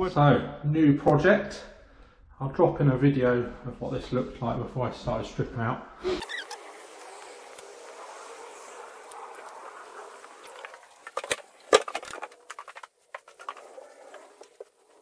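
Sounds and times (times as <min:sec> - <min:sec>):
steady outdoor hiss: 0:06.2 - 0:15.0
footsteps: 0:09.0 - 0:15.0.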